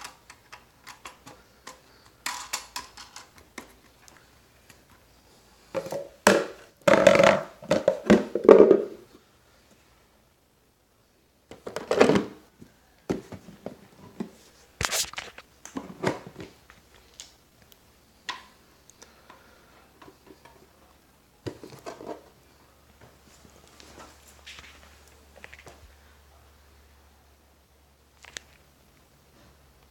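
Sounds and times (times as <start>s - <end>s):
handling knocks and clunks: 13.1s - 14.4s.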